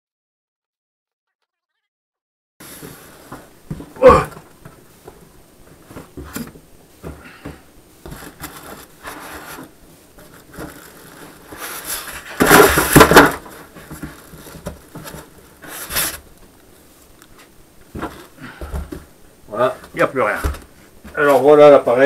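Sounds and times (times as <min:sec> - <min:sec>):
cardboard and foam scraping: 0:02.6 - 0:03.9, 0:08.0 - 0:16.3.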